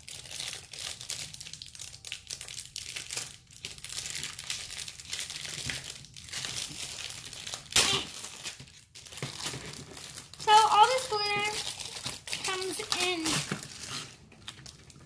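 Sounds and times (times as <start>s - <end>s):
plastic containers crinkling and clicking: 0.2s - 15.0s.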